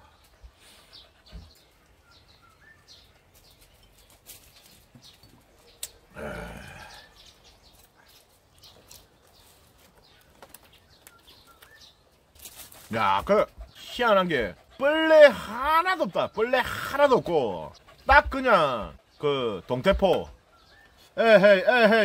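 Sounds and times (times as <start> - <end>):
faint bird chirps: 0.0 - 12.1, 20.3 - 21.2.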